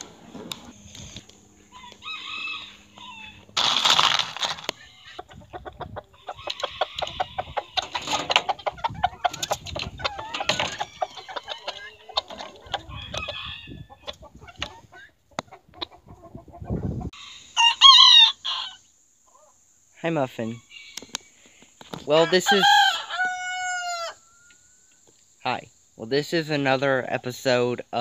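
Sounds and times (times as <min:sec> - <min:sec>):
chickens clucking: 0:00.0 - 0:19.7
rooster crowing: 0:01.6 - 0:03.6, 0:06.2 - 0:08.4, 0:10.0 - 0:14.0, 0:17.2 - 0:18.9, 0:22.1 - 0:24.8.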